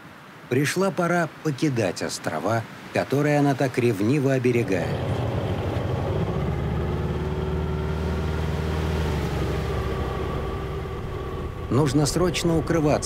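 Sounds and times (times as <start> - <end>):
boat engine humming: 4.5 - 13.0.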